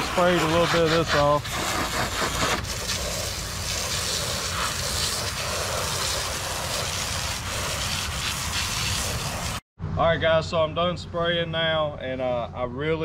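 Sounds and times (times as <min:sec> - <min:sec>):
hose water spray hissing: 0:00.0 - 0:09.6.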